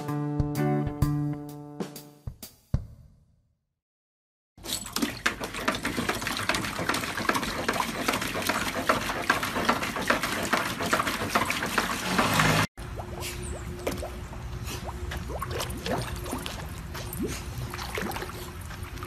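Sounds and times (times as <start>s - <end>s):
water splashing in paddling pool: 4.8s - 19.0s.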